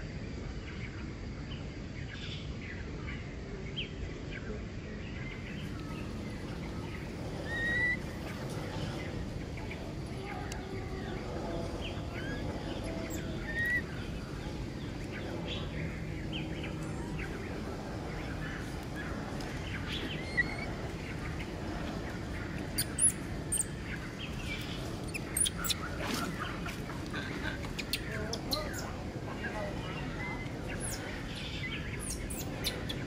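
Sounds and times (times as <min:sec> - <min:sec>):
steady background hiss: 0:00.0 - 0:33.0
small birds chirping: 0:02.0 - 0:33.0.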